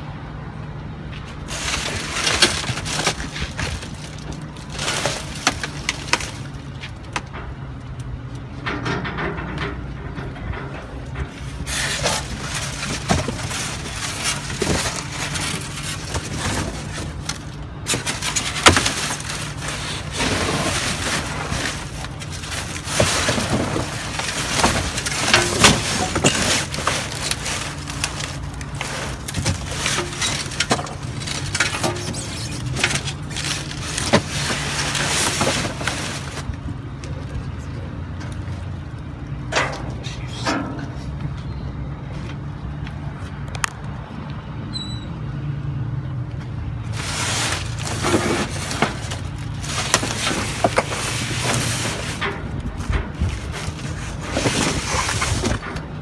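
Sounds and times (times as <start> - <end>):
cardboard and foam rustling: 1.2 - 7.1, 11.3 - 37.4, 46.8 - 56.0.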